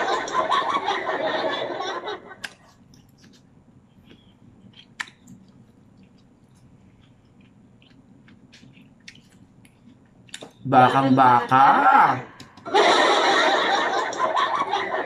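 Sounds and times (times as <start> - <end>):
person chewing food: 2.4 - 10.6.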